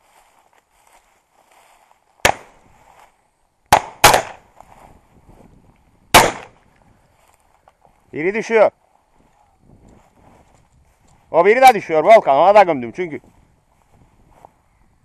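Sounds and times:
shotgun shots: 2.2 - 2.6, 3.7 - 4.4, 6.1 - 6.6.

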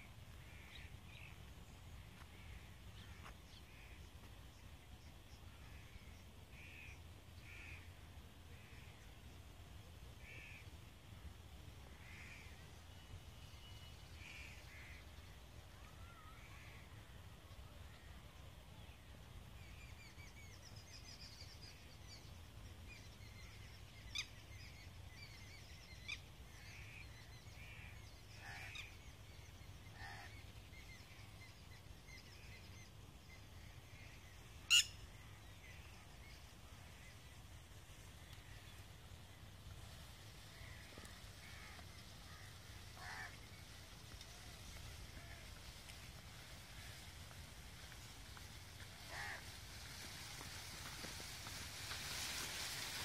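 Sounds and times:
birds chirping: 27.0 - 39.6.

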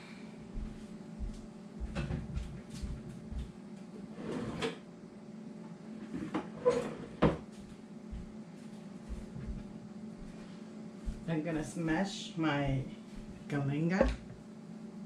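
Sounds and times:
kitchen knocks and clunks: 1.9 - 2.5, 14.0 - 14.4.

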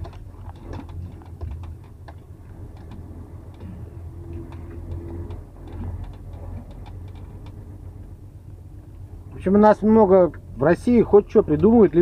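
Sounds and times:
cab rattling and clicking: 0.0 - 8.1
truck engine drone: 0.0 - 12.0.

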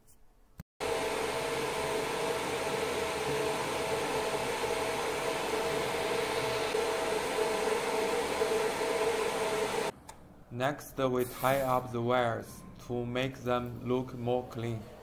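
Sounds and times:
cooling fans whirring: 0.8 - 10.2.

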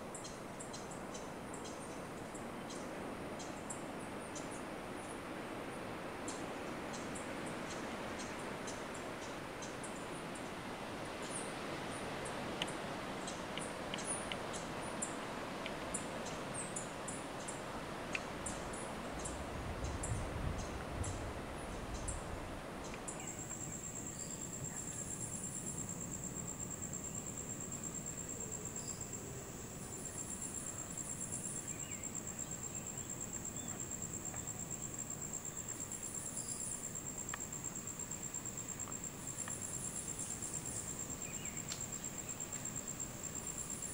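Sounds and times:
insects pulsing trill: 0.0 - 43.9
steady hiss: 0.0 - 43.9
faint ticks: 12.6 - 20.0, 36.6 - 40.5, 41.6 - 42.7.

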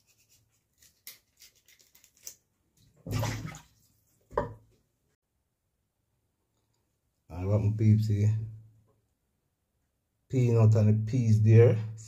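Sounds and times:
water splashing in a pot: 3.0 - 3.8.

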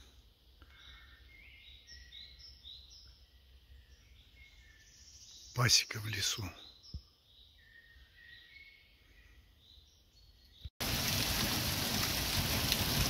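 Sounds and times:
faint birdsong: 0.0 - 10.8
hail falling on ground: 10.8 - 13.0.

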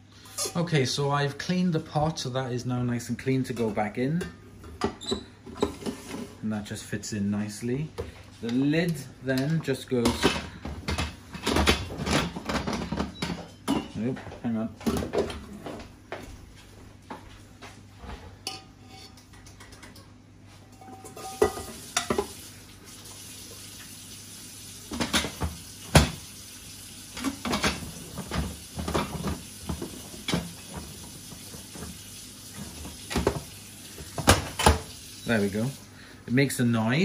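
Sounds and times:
metal pot and lid clunking: 18.4 - 19.2, 20.8 - 22.3.

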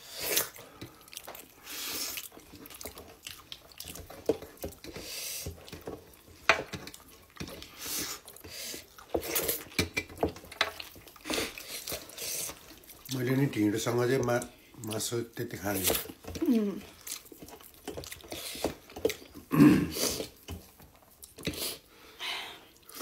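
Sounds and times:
wet squelching of fingers mixing food: 0.0 - 23.0
mouth clicks and chewing: 0.2 - 6.0, 16.0 - 19.4.

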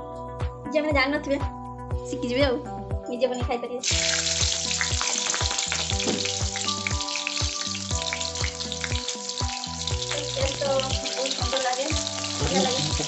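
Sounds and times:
background music with steady beat: 0.0 - 13.0
spices sizzling in hot oil: 3.8 - 13.0.

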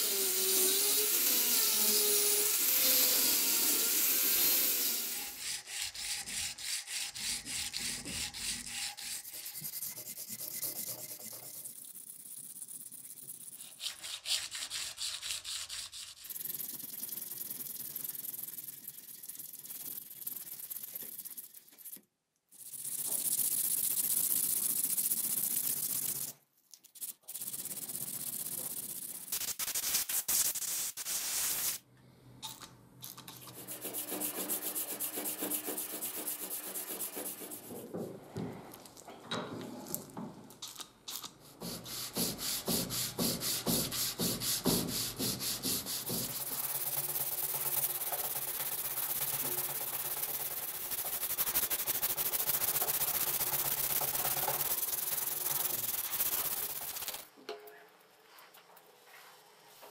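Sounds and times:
sandpaper rasping on metal: 0.0 - 22.0, 27.0 - 31.8, 33.5 - 37.8, 41.6 - 57.2.

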